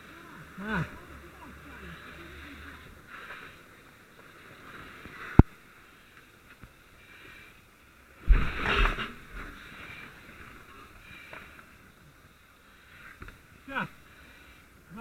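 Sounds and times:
faint steady hiss: 0.0 - 15.0
rustling and scraping: 8.2 - 11.8.

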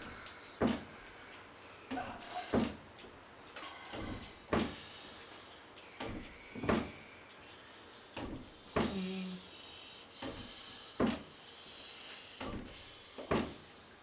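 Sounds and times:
knocks and thuds: 6.0 - 7.0.

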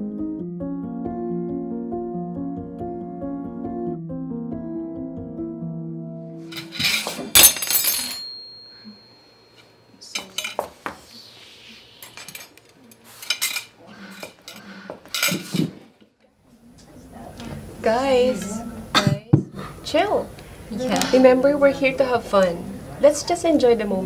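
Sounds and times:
cutlery clattering onto floor: 6.5 - 9.1, 10.0 - 10.9, 12.1 - 15.8
metal cutlery ringing: 6.5 - 10.7, 12.1 - 15.7
cutlery clinking when picked up: 6.5 - 10.8, 12.0 - 15.7.

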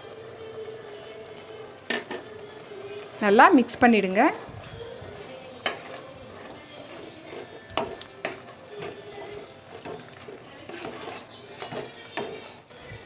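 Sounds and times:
food frying: 0.0 - 13.0
metal ladle scraping pot: 4.6 - 12.6.

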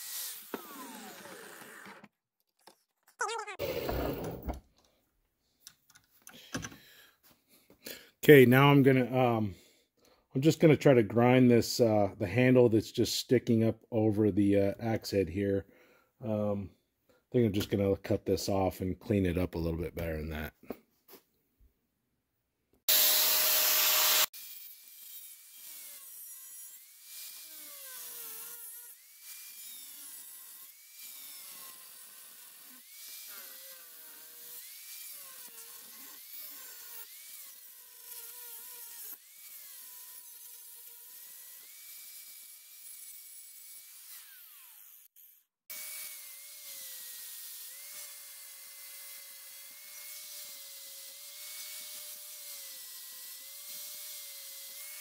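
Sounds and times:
angle grinder cutting wood: 0.0 - 2.1, 3.2 - 4.6, 22.9 - 55.0.

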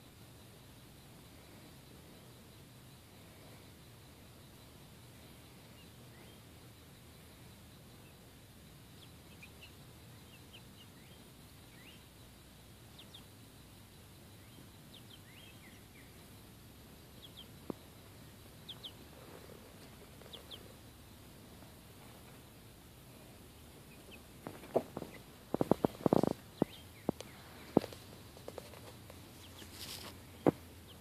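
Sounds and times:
chicks chirping: 8.9 - 12.1, 12.9 - 13.4, 14.2 - 16.4, 17.0 - 22.4, 23.5 - 31.0.

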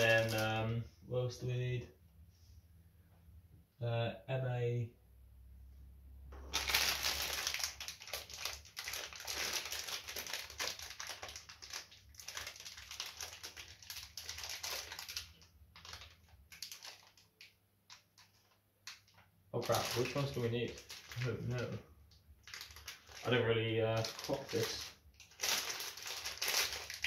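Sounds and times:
plastic bags crinkling: 0.0 - 0.7, 6.4 - 21.8, 22.4 - 27.0.

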